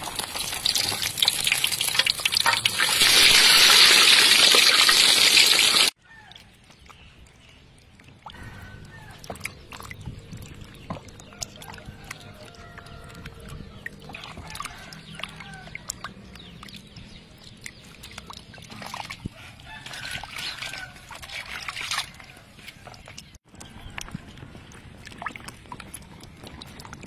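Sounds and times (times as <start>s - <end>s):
fish sizzling in hot oil: 0.0s - 6.0s
hands splashing in water: 11.1s - 24.2s.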